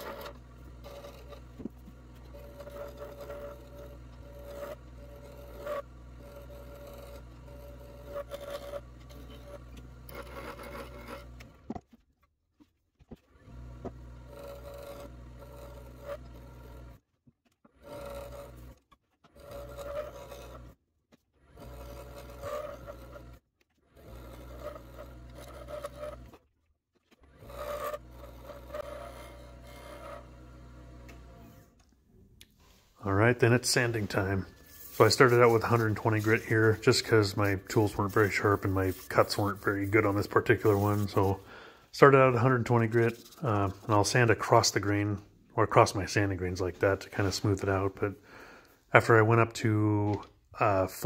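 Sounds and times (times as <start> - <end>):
wood lathe motor hum: 0.0 - 11.9, 13.0 - 31.9, 33.0 - 48.7
turning tool scraping wood: 0.0 - 31.8, 32.5 - 49.5.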